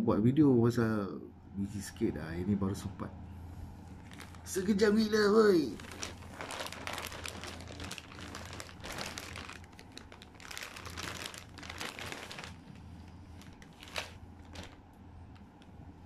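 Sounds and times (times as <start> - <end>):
plastic bag crinkling: 4.0 - 15.7.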